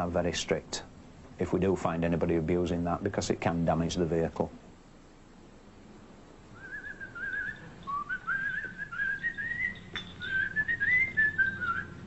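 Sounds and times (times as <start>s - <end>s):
person whistling a tune: 6.6s - 12.0s.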